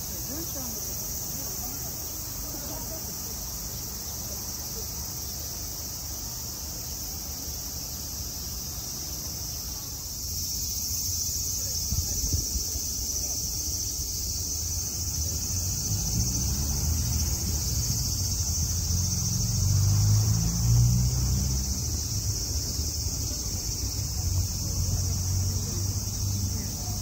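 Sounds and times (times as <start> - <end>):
cicadas chorus: 0.0 - 27.0.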